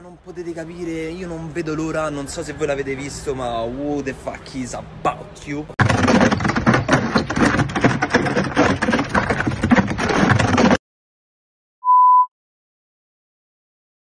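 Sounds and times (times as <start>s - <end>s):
loud dense clattering: 5.8s - 10.8s
short electronic beep: 11.8s - 12.3s.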